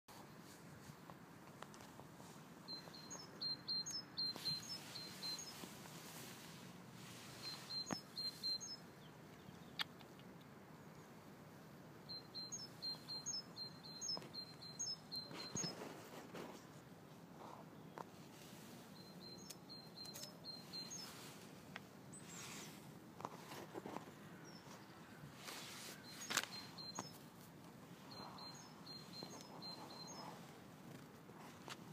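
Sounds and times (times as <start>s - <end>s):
robin chirping: 2.6s - 5.7s, 7.2s - 10.2s, 12.1s - 15.9s, 18.9s - 21.4s, 24.4s - 27.3s, 27.9s - 30.5s.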